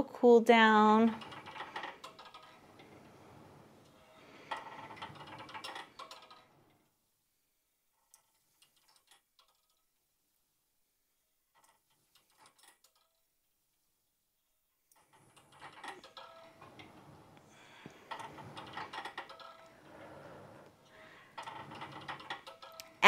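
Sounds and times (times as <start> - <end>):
exercise machine clicking and rattling: 0.8 - 6.9, 7.9 - 9.8, 11.5 - 13.3, 14.9 - 23.0.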